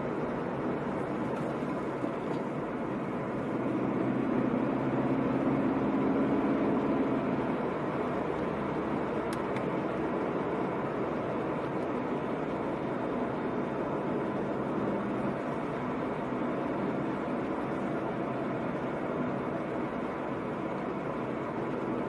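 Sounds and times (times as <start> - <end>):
car engine from inside cabin: 0.0 - 22.0
tyre road noise: 0.0 - 22.0.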